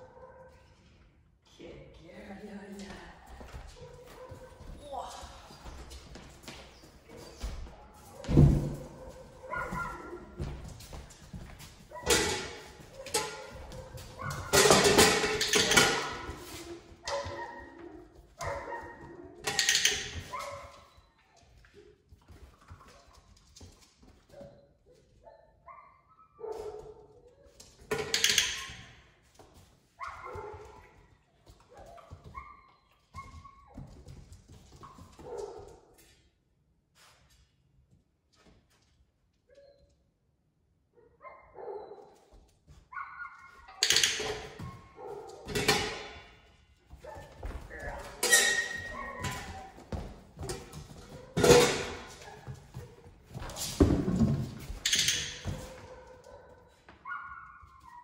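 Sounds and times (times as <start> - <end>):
puppy barking: 0.0 - 0.6, 8.1 - 10.4, 11.9 - 15.2, 17.0 - 19.5, 25.2 - 27.6, 30.0 - 30.9, 41.0 - 42.2, 42.9 - 43.9, 44.9 - 45.8, 47.0 - 49.8, 55.6 - 58.0.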